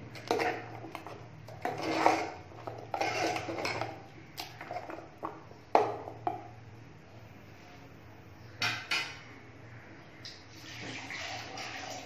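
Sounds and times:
spoon stirring thick gravy: 0.0 - 6.6.

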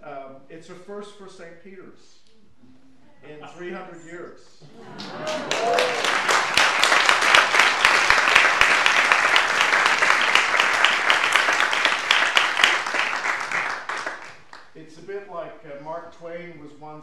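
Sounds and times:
many hands clapping: 5.0 - 14.8.

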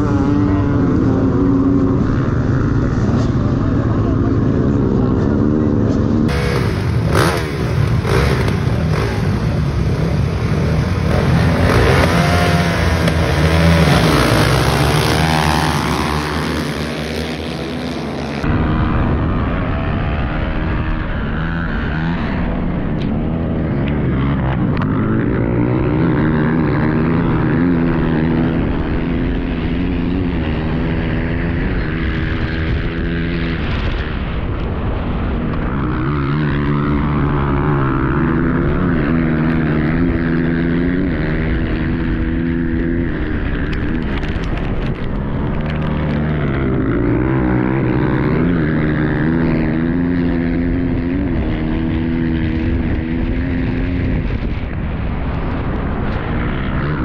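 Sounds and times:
wind rush: 26.6 - 57.0.

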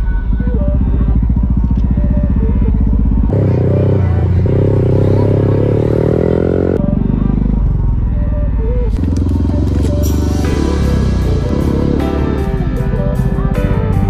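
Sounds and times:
motorcycle engine pulsing: 0.0 - 14.0
motorcycle engine revving: 0.0 - 14.0.

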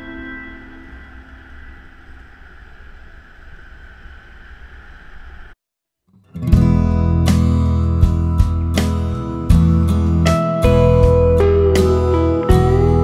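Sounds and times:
soft ambient music: 0.0 - 2.5, 7.1 - 13.0
strummed acoustic guitar music: 6.2 - 13.0.

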